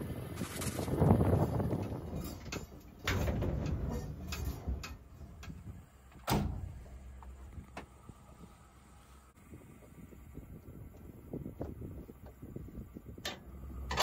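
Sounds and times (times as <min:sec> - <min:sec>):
metal scrape: 0:00.4 - 0:05.4
metal clanks and knocks: 0:01.2 - 0:07.9.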